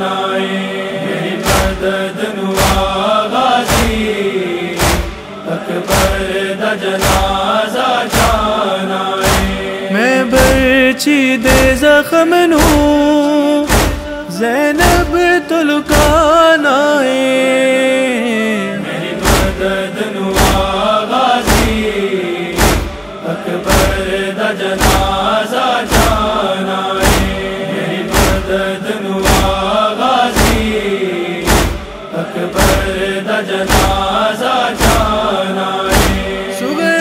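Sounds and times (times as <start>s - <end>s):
male chorus humming: 0.0s - 37.0s
chest-beating thumps: 1.4s - 4.2s, 4.8s - 8.6s, 9.2s - 9.7s, 10.4s - 11.9s, 12.6s - 15.3s, 15.9s - 16.3s, 19.2s - 26.4s, 27.0s - 36.5s.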